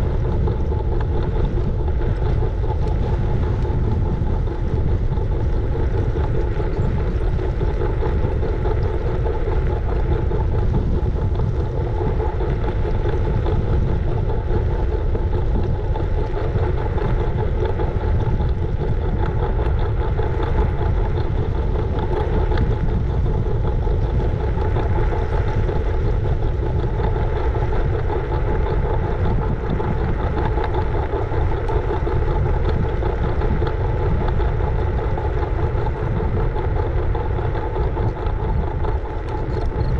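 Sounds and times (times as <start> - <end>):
steady hum: 0.0 - 39.9
wind and road noise: 0.0 - 39.9.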